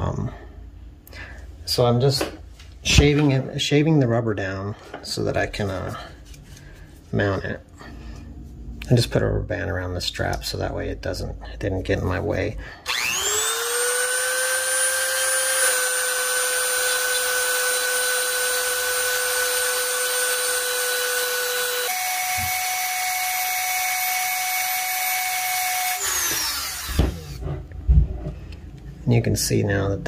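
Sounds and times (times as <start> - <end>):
rotary tool grinding rubber: 12.9 - 22.7, 25.9 - 27.5.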